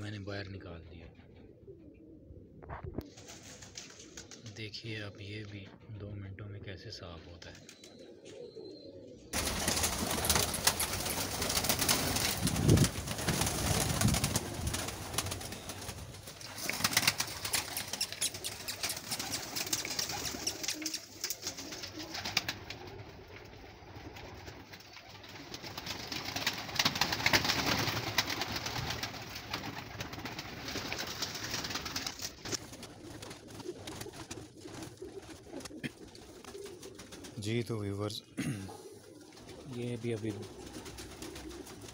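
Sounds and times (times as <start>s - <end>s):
pigeons cooing: 1.0s - 3.1s, 7.6s - 37.4s, 38.4s - 41.9s
wings rustling: 2.7s - 4.6s, 7.2s - 38.0s, 38.7s - 41.9s.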